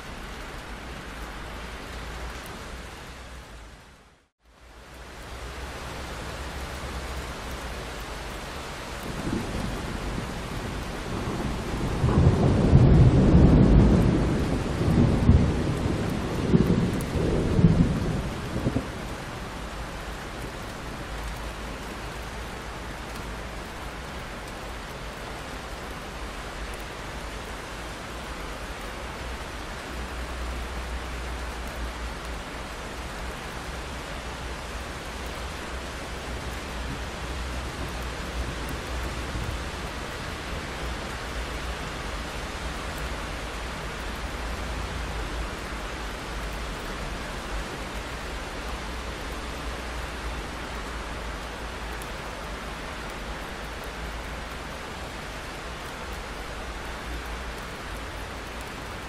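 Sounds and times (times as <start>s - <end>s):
rain pattering on window glass: 4.4s - 59.0s
thunder rumbling: 9.0s - 19.6s.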